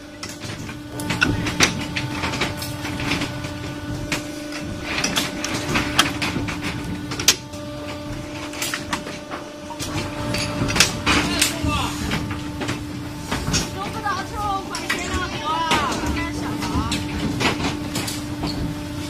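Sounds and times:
machine hum: 0.0s - 19.0s
press machines clanking: 0.0s - 19.0s.

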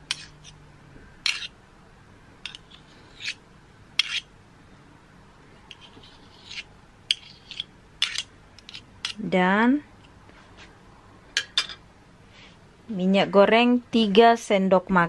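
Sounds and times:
spoon scraping whisk wires: 0.0s - 0.6s, 1.2s - 1.6s, 2.4s - 3.4s, 4.0s - 4.3s, 5.6s - 9.2s.

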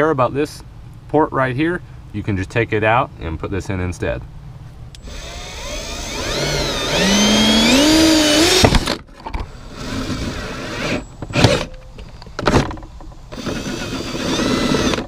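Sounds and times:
cordless drill boring through plastic: 5.0s - 8.9s, 13.3s - 15.0s.

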